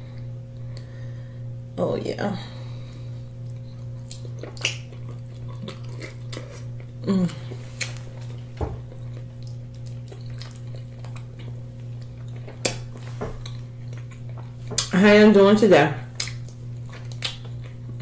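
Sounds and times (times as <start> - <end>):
low electrical hum: 0.0 - 18.0
wet mouth clicks and smacks: 3.5 - 5.0, 16.2 - 17.5.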